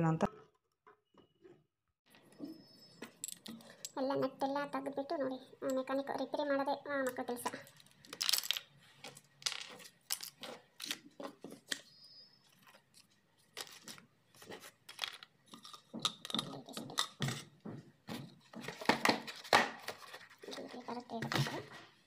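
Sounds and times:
household clutter being handled: 0:07.4 - 0:22.0.

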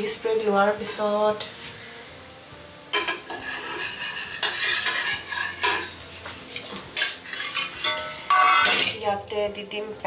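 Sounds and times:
metal utensil scraping cookware: 0:02.9 - 0:09.1.

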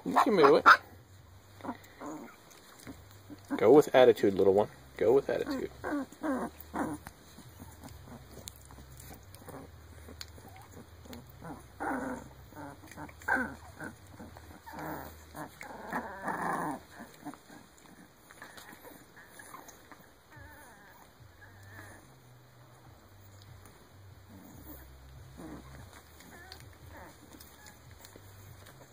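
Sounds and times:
puppies whining and squealing: 0:00.0 - 0:28.9.

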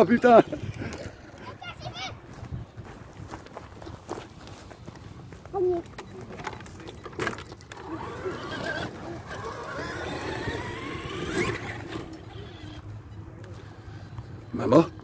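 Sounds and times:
electric toy truck motor whining: 0:07.2 - 0:15.0.

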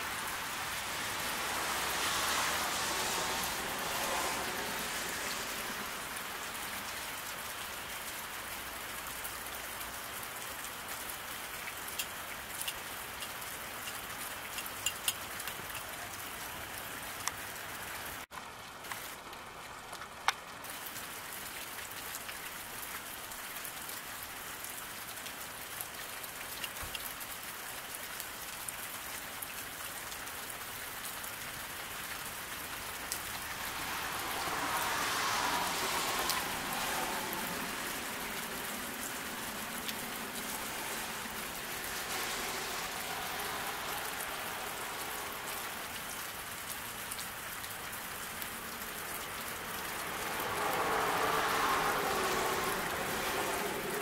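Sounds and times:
car tyres hissing on wet road: 0:00.0 - 0:13.6, 0:29.7 - 0:54.0
rain falling on road: 0:00.0 - 0:54.0.

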